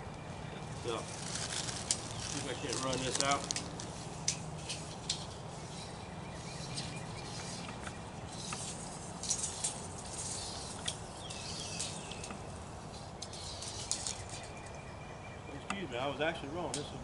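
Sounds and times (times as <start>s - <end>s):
tape measure clicking and rattling: 1.1s - 5.4s, 6.6s - 14.7s.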